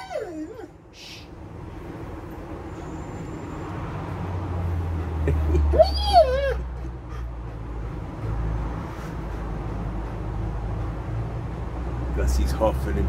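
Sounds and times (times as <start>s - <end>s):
dog whining: 0.0s - 1.3s, 5.6s - 7.4s.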